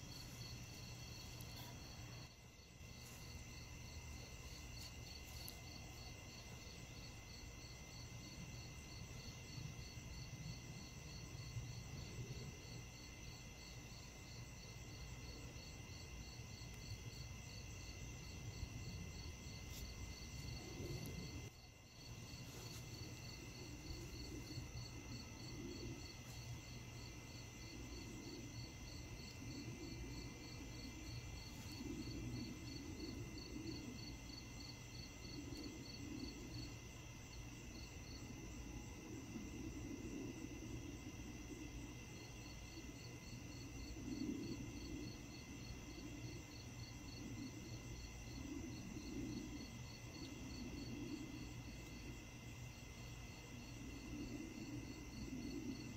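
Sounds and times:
crickets and insects trilling: 0.0 - 55.9.

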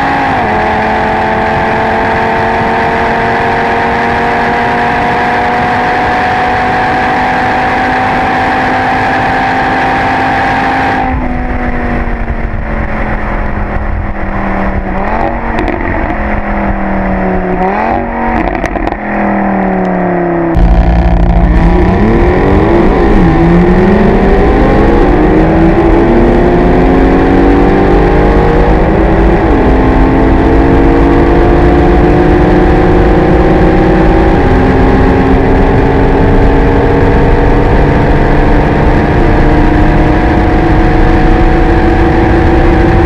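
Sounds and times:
car engine at full throttle: 0.0 - 43.0
wind and road noise: 0.0 - 43.0
engine throttle blips: 10.5 - 43.0.

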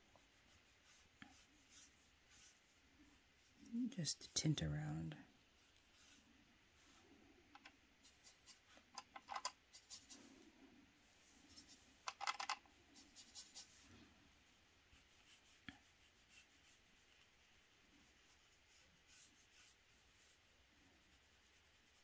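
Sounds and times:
paintbrush clicks and scratches: 6.8 - 10.4, 11.4 - 13.8.

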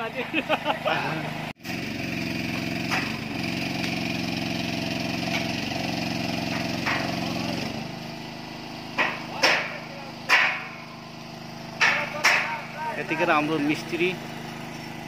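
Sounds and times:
small engine running: 0.0 - 15.0.

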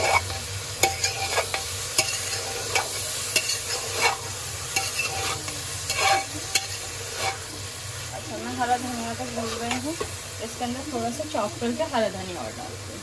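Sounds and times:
metal spoon stirring food: 0.0 - 10.2
spoon clinking against pot: 0.8 - 4.2.

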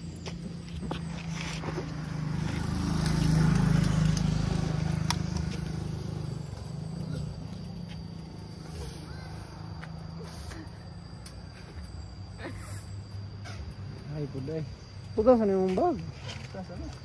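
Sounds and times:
vehicle engine passing by: 0.0 - 11.2.

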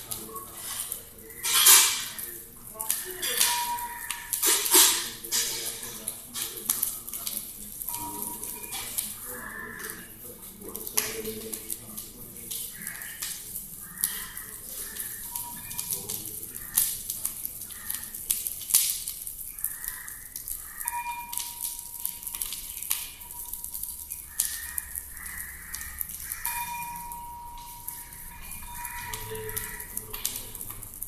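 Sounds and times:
fire crackling and popping: 0.0 - 31.0
thin steady tone: 7.8 - 9.8, 26.5 - 30.8.

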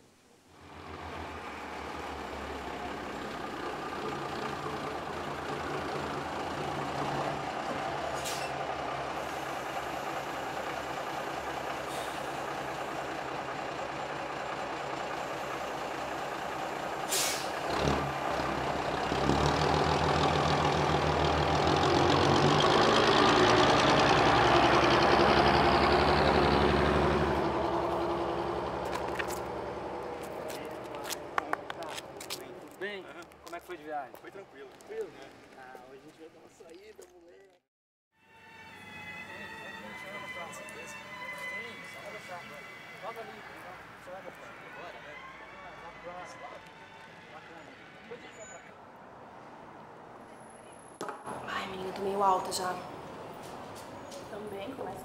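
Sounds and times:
bus engine running: 0.6 - 36.6
air brake hiss: 8.1 - 8.6, 11.8 - 12.5, 17.0 - 17.6.

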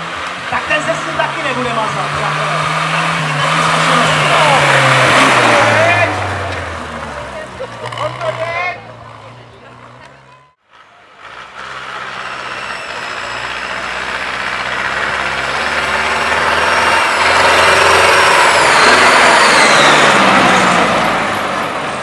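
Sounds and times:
tractor diesel engine running hard: 0.0 - 22.0.

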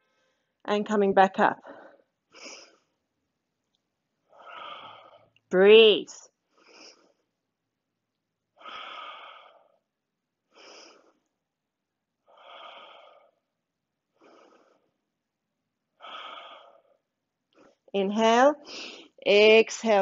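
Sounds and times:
woman breathing: 1.6 - 3.0, 4.2 - 5.4, 6.4 - 7.4, 8.6 - 11.4, 12.2 - 13.5, 14.1 - 15.1, 16.0 - 17.9, 18.6 - 19.2.

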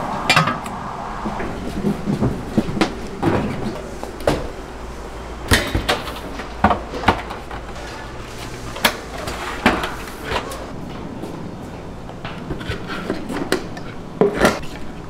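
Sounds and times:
low hum: 0.0 - 5.5.

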